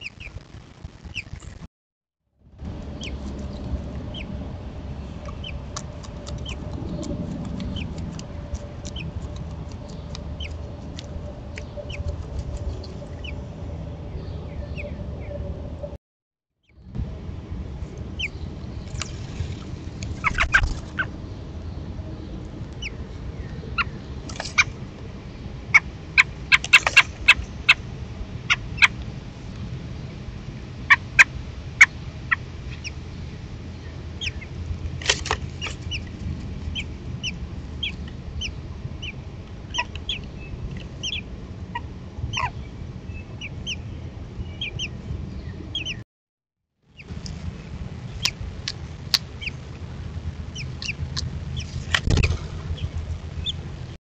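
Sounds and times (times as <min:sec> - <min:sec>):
steady low hum: 0:02.4 - 0:16.0, 0:46.9 - 0:54.0
baby birds chirping: 0:02.9 - 0:04.4, 0:05.2 - 0:06.7, 0:07.6 - 0:10.6, 0:20.2 - 0:21.1, 0:25.7 - 0:27.8, 0:34.2 - 0:34.6, 0:36.7 - 0:41.3, 0:42.3 - 0:46.0, 0:49.3 - 0:49.6, 0:50.5 - 0:53.6.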